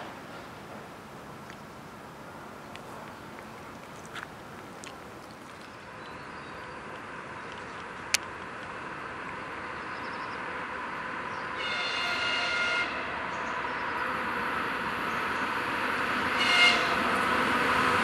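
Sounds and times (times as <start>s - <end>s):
electric locomotive rumble: 0.0s - 18.0s
train horn blast: 11.6s - 13.3s, 16.3s - 17.3s.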